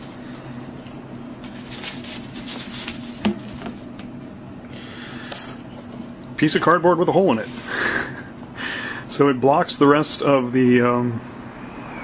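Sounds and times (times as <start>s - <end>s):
steady low hum: 0.0s - 12.0s
cardboard rustling and scraping: 1.4s - 3.9s.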